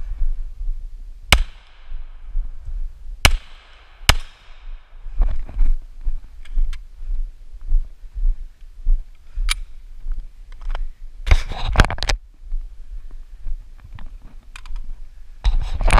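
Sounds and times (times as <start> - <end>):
rustle: 0.0 - 15.9
footsteps on grass: 1.4 - 10.3.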